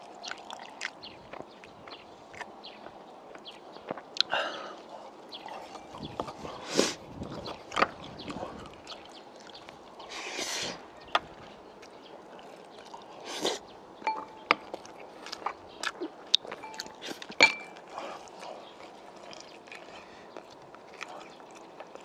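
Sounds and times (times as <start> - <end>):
man chewing: 0.0 - 22.0
slurps: 3.9 - 11.0, 11.8 - 13.8, 14.6 - 22.0.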